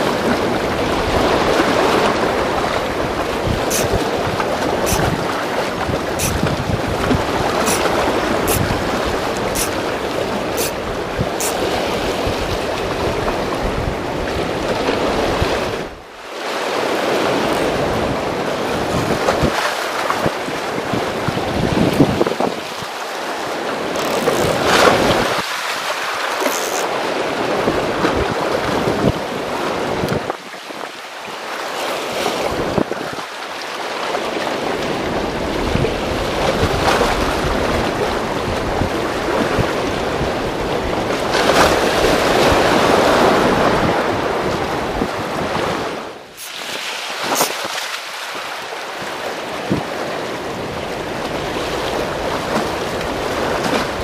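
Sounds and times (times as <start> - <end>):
wind gusting on microphone: 0.0 - 16.0, 17.0 - 22.9
sea surf washing against breakwater: 0.0 - 54.0.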